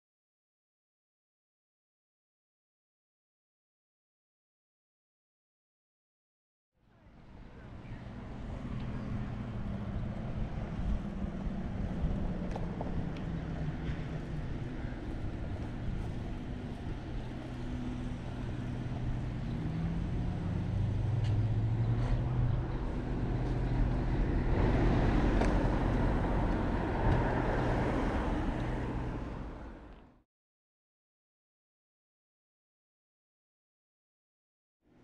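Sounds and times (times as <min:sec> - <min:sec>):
car traffic hum: 0:06.8 - 0:30.2
wind on microphone: 0:09.2 - 0:18.5.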